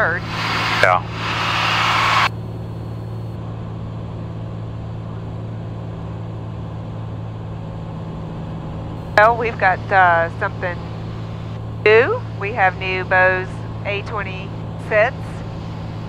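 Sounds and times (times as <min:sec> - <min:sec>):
airplane engine drone in cabin: 0:00.0 - 0:16.0
loud burst of hiss: 0:00.2 - 0:02.3.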